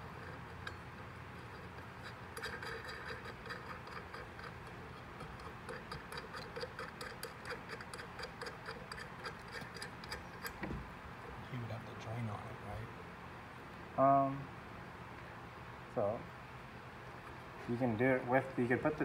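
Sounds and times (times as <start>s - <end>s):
light metallic ticking: 0.0s - 10.7s.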